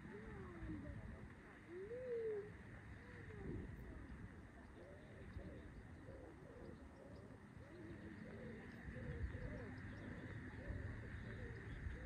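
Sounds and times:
pigeons cooing: 4.8s - 12.0s.

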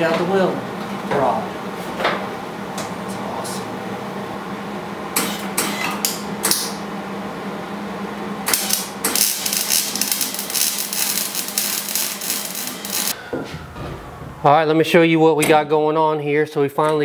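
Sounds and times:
steady low hum: 0.0s - 15.0s
welding arc crackling: 8.4s - 13.2s.

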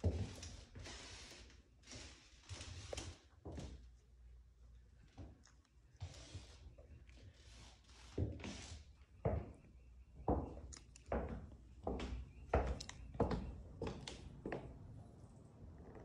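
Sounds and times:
footsteps on hardwood floor: 9.2s - 14.8s.

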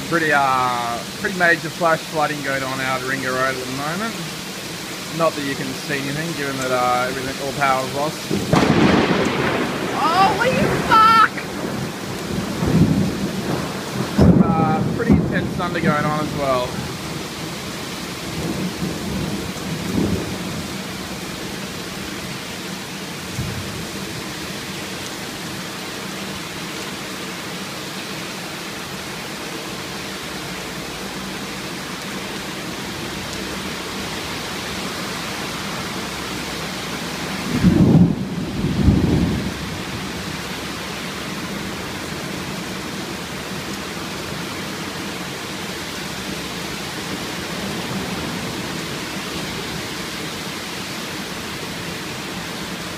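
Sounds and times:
heavy rain: 0.0s - 52.9s
thunder rumbles: 8.3s - 22.3s, 23.3s - 24.2s, 37.3s - 40.2s.

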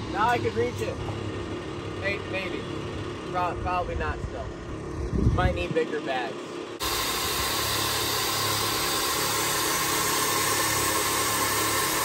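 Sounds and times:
truck engine idling: 0.0s - 12.0s
air suspension hissing: 6.8s - 12.0s.

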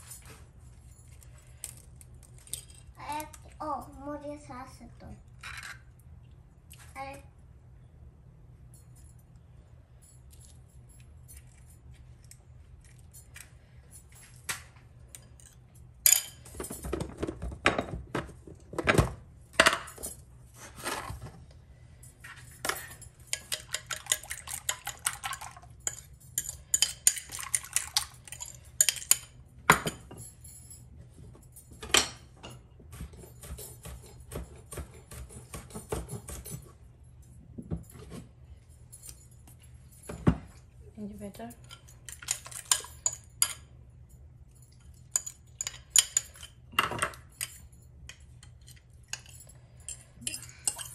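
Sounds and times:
fork beating eggs in a bowl: 23.3s - 29.3s, 49.9s - 50.9s.

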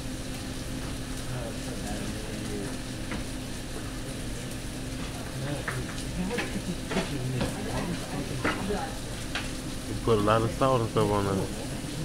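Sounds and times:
food sizzling on a griddle: 0.0s - 12.0s.

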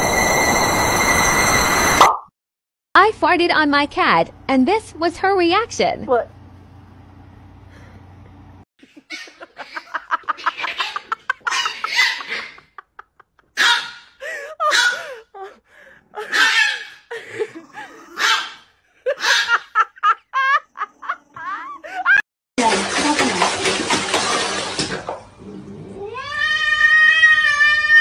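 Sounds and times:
person laughing hard: 8.8s - 13.5s, 14.2s - 16.5s, 18.9s - 22.2s.

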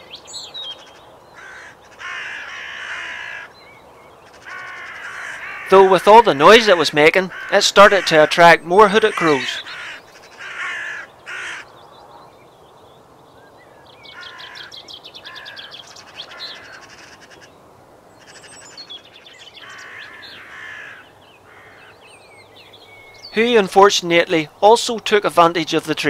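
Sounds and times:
crows cawing: 0.8s - 3.6s, 4.2s - 12.3s, 14.1s - 17.6s, 18.2s - 22.1s.

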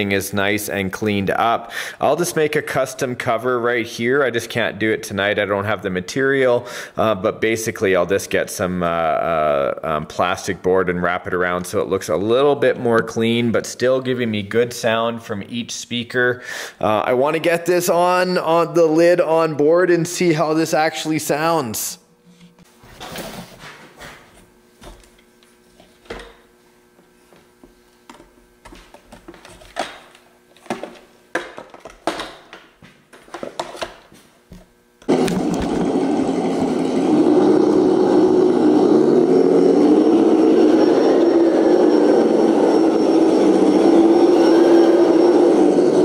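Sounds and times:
simulated engine sound: 35.1s - 46.0s.

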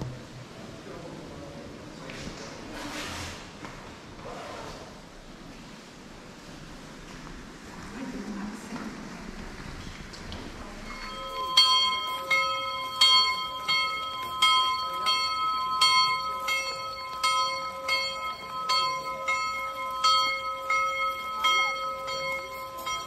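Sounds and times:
church bell ringing: 10.8s - 23.0s.

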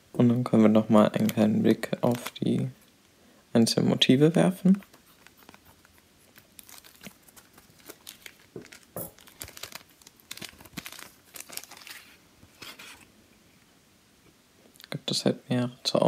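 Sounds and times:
plastic wrapping crinkling: 1.2s - 2.7s, 4.6s - 13.1s.

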